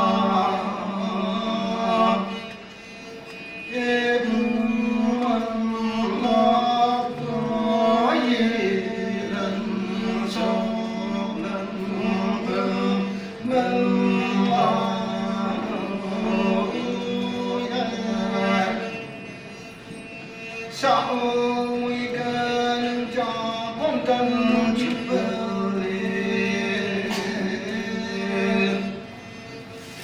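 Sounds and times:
string instrument: 0.0s - 30.0s
two men singing folk song: 3.7s - 19.0s, 20.8s - 29.0s.

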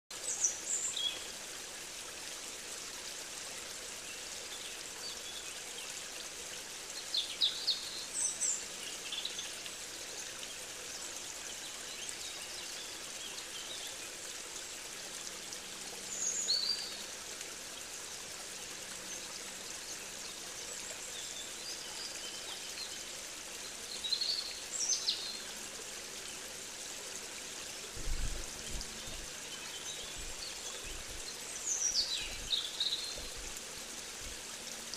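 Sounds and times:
running water: 0.1s - 34.9s
songbirds chirping: 27.2s - 34.6s.

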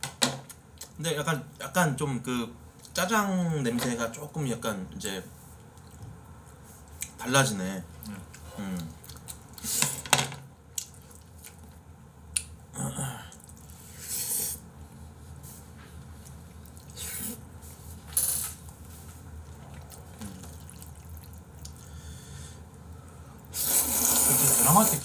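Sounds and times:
noodles being slurped: 19.6s - 21.9s, 23.5s - 25.0s.

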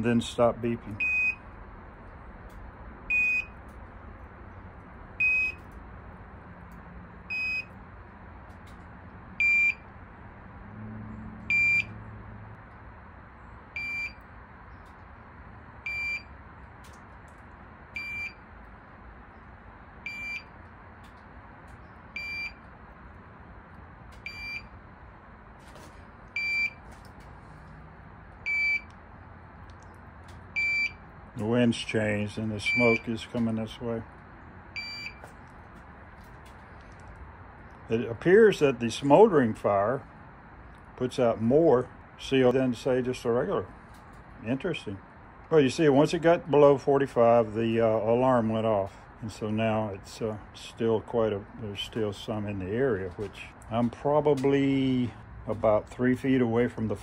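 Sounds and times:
detector alarm short high beeps: 1.0s - 1.4s, 3.1s - 3.6s, 5.2s - 5.6s, 7.3s - 7.7s, 9.4s - 9.8s, 11.5s - 11.9s, 13.8s - 14.2s, 15.9s - 16.3s, 18.0s - 18.4s, 20.1s - 20.5s, 22.2s - 22.6s, 24.2s - 24.7s, 26.4s - 26.8s, 28.5s - 28.9s, 30.6s - 31.0s, 32.6s - 33.1s, 34.8s - 35.3s.

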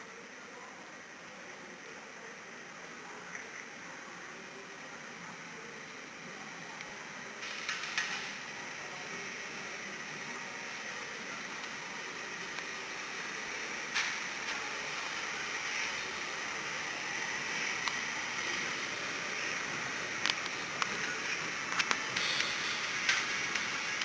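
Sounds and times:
steam locomotive hissing: 5.6s - 24.0s
running gear clicking on track: 20.2s - 24.0s.

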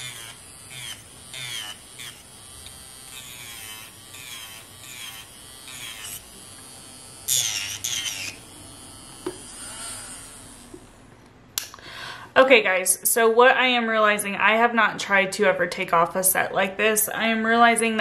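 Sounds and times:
electric nail drill whining: 0.0s - 11.4s.

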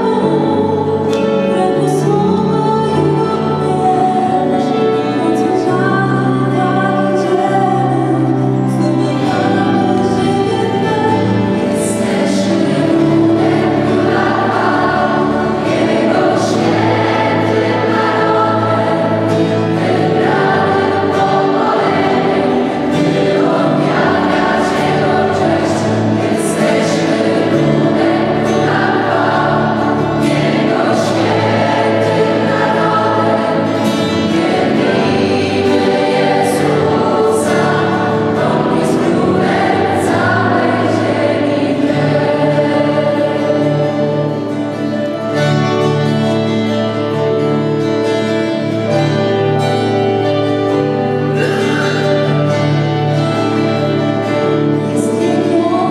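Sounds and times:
woman lead singer on microphone: 0.0s - 25.8s, 54.8s - 55.9s
choir singing gospel: 0.0s - 55.9s.

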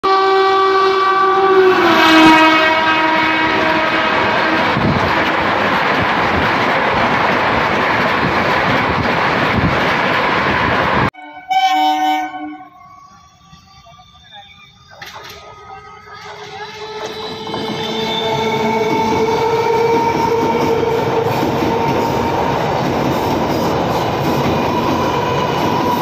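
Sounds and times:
train horn: 0.0s - 4.9s, 11.2s - 13.2s, 15.7s - 22.3s
train coaches rumbling and clattering: 1.4s - 11.2s, 12.2s - 26.0s.

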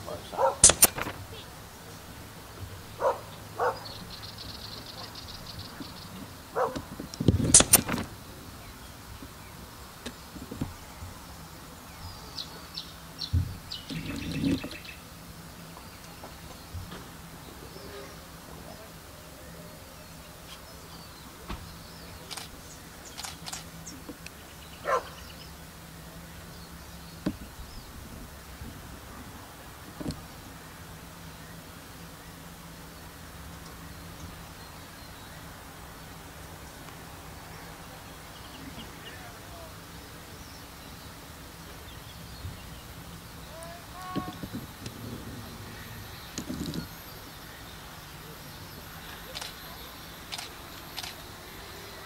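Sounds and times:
bird calls: 0.0s - 52.0s
faint low hum: 0.0s - 52.0s
dog barking: 0.1s - 0.7s, 3.0s - 3.9s, 6.6s - 6.8s, 24.8s - 25.2s.

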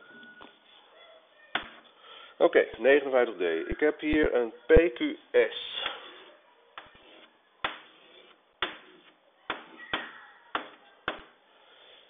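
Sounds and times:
chalk tapping and scraping: 5.7s - 11.3s.

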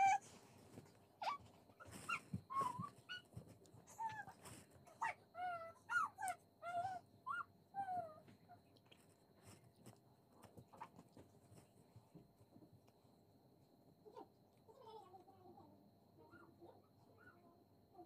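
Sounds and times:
animal whimpering: 0.0s - 0.3s.

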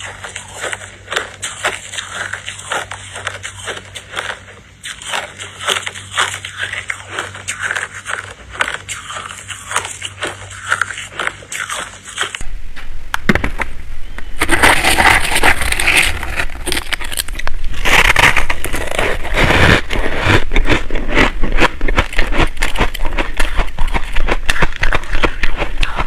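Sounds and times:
ice crunching between teeth: 0.0s - 12.4s, 14.4s - 26.0s
crushed ice crackling: 14.4s - 26.0s
metal spoon scraping ice: 14.4s - 26.0s.

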